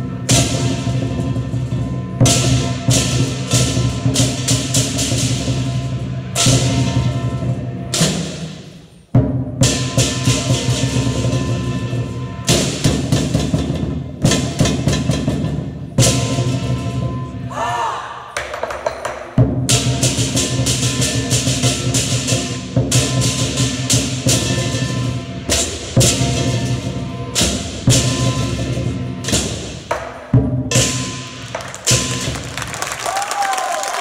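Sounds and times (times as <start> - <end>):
cymbals clashing: 0.0 - 32.8
lion drum beating: 18.4 - 33.5.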